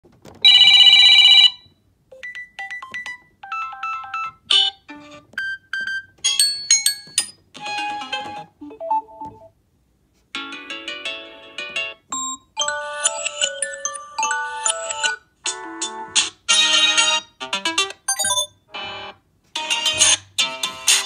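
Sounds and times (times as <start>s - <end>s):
electronic ringtone melody: 2.2s - 4.8s, 12.3s - 15.2s, 18.1s - 18.5s.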